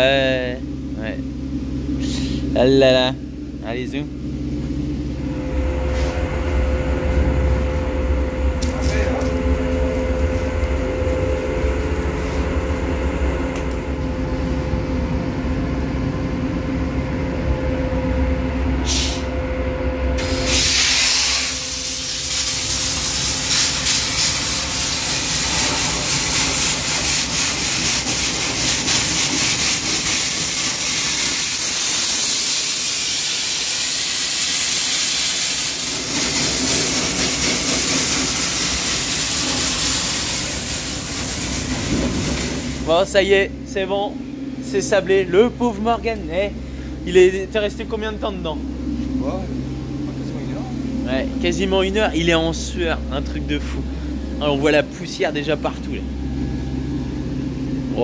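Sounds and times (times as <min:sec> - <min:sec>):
machine hum with low drone: 0:00.0 - 0:58.0
blast nozzle hissing: 0:20.2 - 0:42.9.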